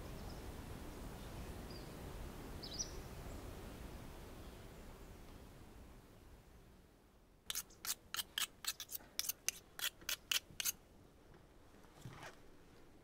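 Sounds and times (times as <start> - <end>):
sharp snips: 7.5 - 10.8.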